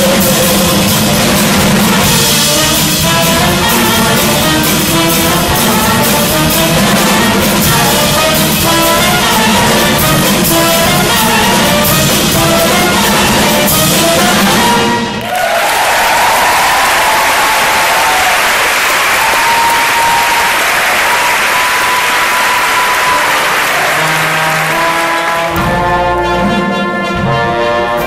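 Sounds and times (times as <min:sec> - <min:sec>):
loud music with drums: 0:00.0 - 0:15.2, 0:21.9 - 0:28.0.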